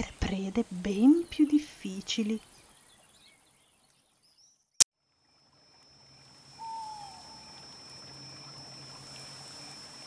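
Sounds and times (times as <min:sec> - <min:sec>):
high insect trill: 0:05.3 - 0:10.0
owl call: 0:06.6 - 0:07.8.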